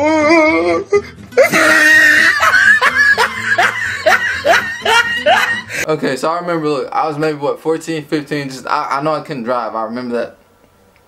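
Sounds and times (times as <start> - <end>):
person laughing loudly: 1.3 - 5.9.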